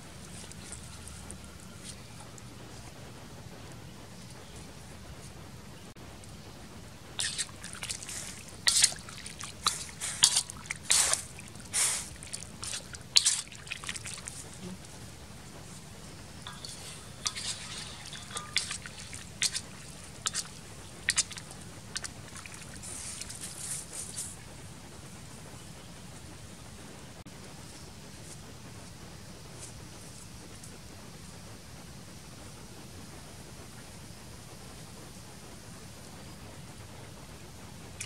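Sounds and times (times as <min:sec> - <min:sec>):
ladle sloshing water in wok: 0:07.2 - 0:14.9, 0:16.2 - 0:24.4.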